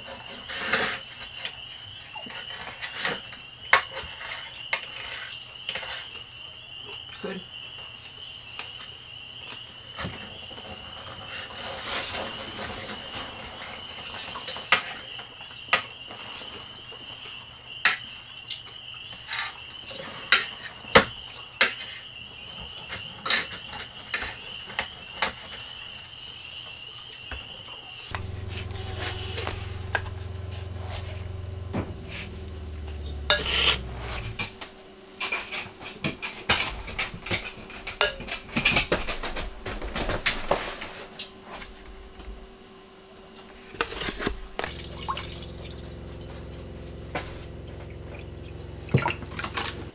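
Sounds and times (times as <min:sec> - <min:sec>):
steady high tone: 0:28.1 - 0:34.6, 0:44.7 - 0:49.9
low hum: 0:28.1 - 0:35.0, 0:44.6 - 0:49.9.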